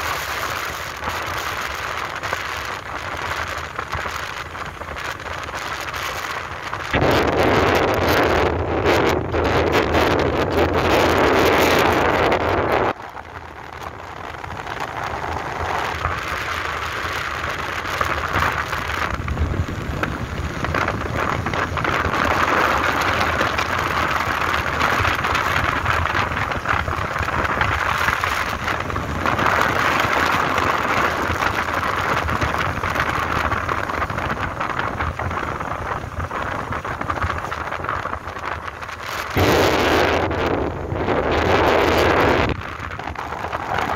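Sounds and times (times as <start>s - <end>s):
motorbike engine: 0.0s - 43.9s
road noise: 0.0s - 43.9s
wind rushing over microphone: 0.0s - 43.9s.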